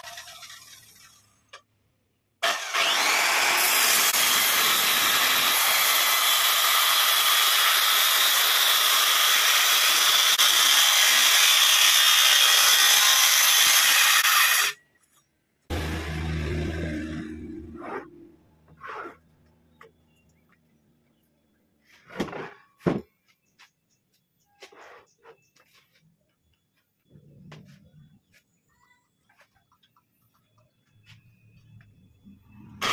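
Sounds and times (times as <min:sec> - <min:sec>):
circular saw cutting wood: 0:00.0 - 0:01.5, 0:02.4 - 0:14.8, 0:15.7 - 0:19.2.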